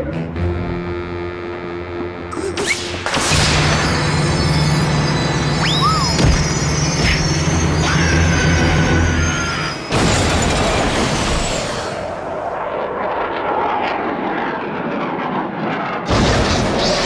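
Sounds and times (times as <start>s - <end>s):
rush of noise: 2.3s - 14.0s
whistling glide: 2.5s - 10.4s
cartoon music: 5.6s - 6.4s.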